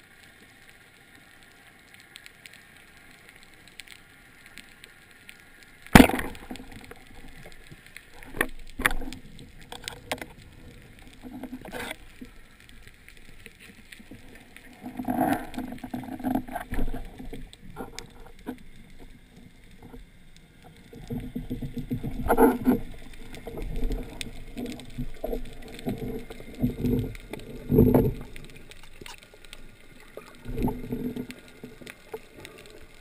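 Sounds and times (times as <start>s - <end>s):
clicks and knocks underwater: 5.8s - 33.0s
speargun firing underwater: 5.9s - 6.9s.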